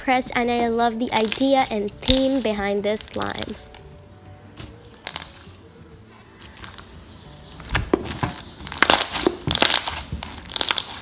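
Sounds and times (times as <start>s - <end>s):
faint music: 0.0s - 11.0s
slime squeezing: 4.6s - 5.6s, 8.0s - 11.0s.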